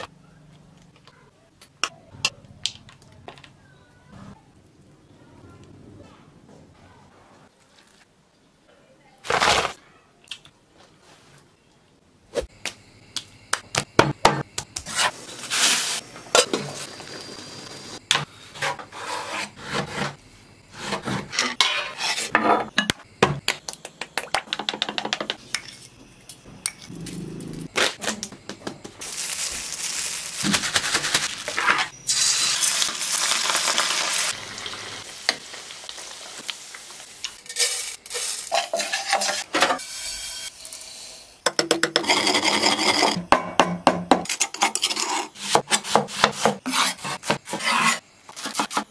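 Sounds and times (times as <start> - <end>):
food sizzling in a pan: 29.0 - 41.4
utensils and dishes clinking: 37.4 - 39.9.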